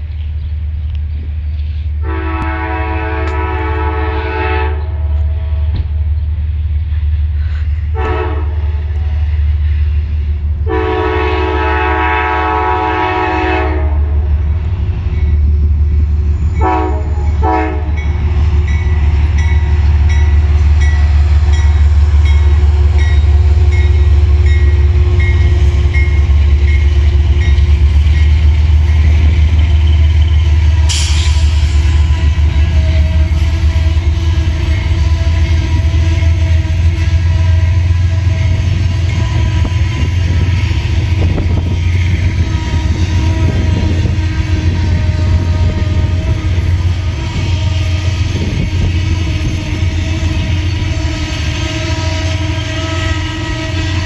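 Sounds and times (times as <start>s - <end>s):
locomotive engine and wheels rumbling: 0.0s - 54.0s
locomotive horn blasts: 2.0s - 5.6s, 7.9s - 9.1s, 10.6s - 14.3s, 16.6s - 27.6s, 31.9s - 54.0s.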